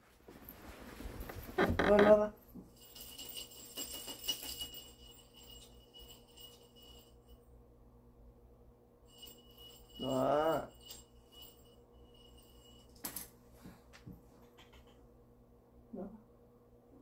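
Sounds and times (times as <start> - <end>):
faint bell-like jingling: 2.4 - 7.6, 9.0 - 13.5.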